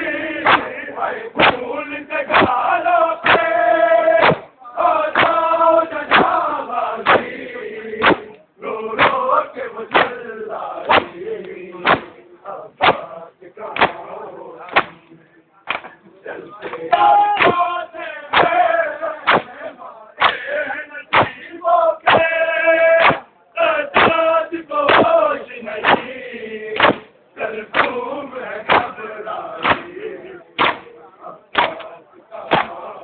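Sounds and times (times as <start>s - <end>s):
men chanting a lament: 0.0s - 33.0s
hands slapping bare chests: 0.4s - 0.8s, 1.4s - 1.7s, 2.3s - 2.6s, 3.2s - 3.5s, 4.2s - 4.5s, 5.1s - 5.4s, 6.1s - 6.4s, 7.0s - 7.3s, 8.0s - 8.4s, 9.0s - 9.2s, 9.9s - 10.2s, 10.8s - 12.2s, 12.8s - 13.1s, 13.8s - 14.0s, 14.7s - 15.0s, 15.7s - 16.0s, 17.4s - 17.6s, 18.3s - 18.6s, 19.2s - 19.5s, 20.2s - 20.5s, 21.1s - 21.4s, 22.1s - 22.3s, 23.0s - 23.3s, 24.0s - 24.2s, 24.9s - 25.2s, 25.8s - 26.1s, 26.8s - 27.1s, 27.7s - 28.0s, 28.7s - 29.0s, 29.6s - 29.9s, 30.6s - 30.9s, 31.5s - 31.9s, 32.5s - 32.8s.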